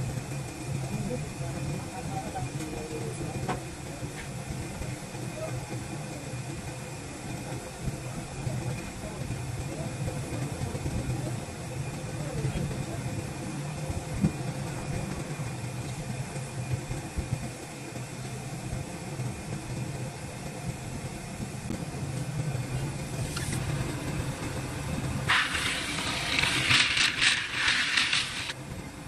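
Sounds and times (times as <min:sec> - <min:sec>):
loud rough hiss: 0:21.0 - 0:28.6
machine motor humming: 0:22.1 - 0:28.6.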